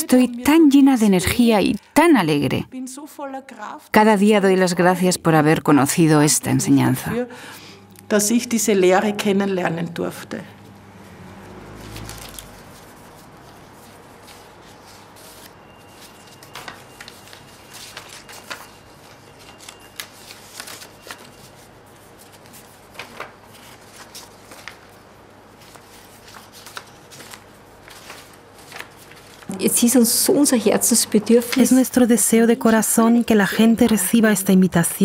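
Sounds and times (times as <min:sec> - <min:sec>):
paper rustling: 0:11.5 - 0:30.5, 0:31.3 - 0:34.0.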